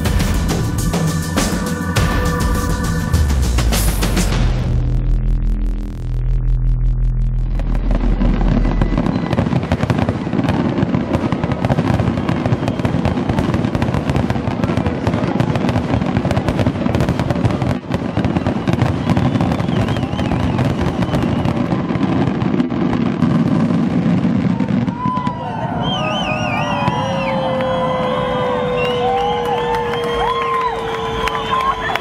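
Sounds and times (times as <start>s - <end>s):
fireworks crackling: 0.0s - 28.0s
fireworks bangs rumbling: 7.2s - 28.3s.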